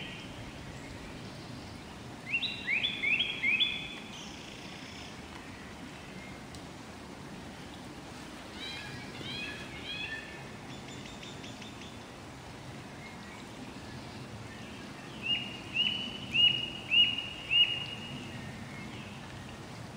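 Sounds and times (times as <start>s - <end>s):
blackbird chirps: 0.0s - 5.1s, 14.6s - 19.2s
background hiss: 0.0s - 19.9s.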